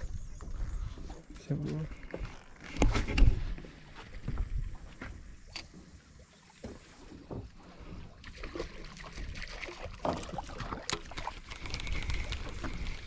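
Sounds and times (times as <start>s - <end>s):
water sloshing against hull: 0.0s - 13.0s
fishing gear knocks and clicks: 1.9s - 3.4s, 10.0s - 13.0s.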